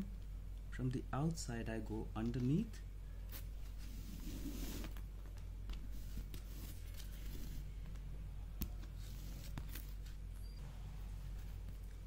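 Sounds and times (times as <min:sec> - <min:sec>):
low steady hum: 0:00.0 - 0:12.0
thread rustling and scraping: 0:03.2 - 0:08.0, 0:08.8 - 0:10.3.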